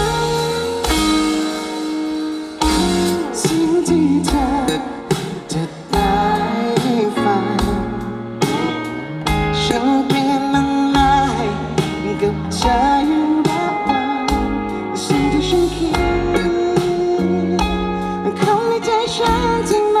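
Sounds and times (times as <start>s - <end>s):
drum hits: 0.0s - 9.7s
live rock band playing: 0.0s - 20.0s
person singing: 0.0s - 20.0s.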